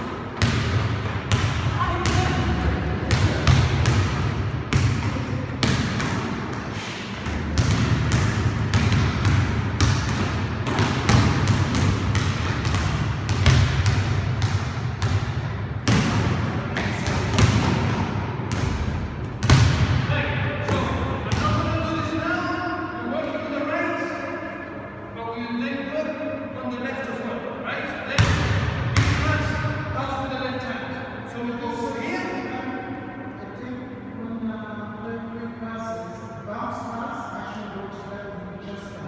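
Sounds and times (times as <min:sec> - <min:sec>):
basketballs bouncing on court floor: 0:00.0 - 0:21.9, 0:28.2 - 0:29.6.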